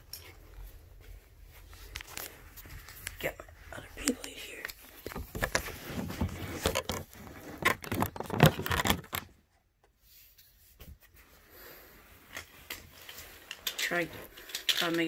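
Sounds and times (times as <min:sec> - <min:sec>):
camera handling knocks and rustles: 0:05.0 - 0:09.3.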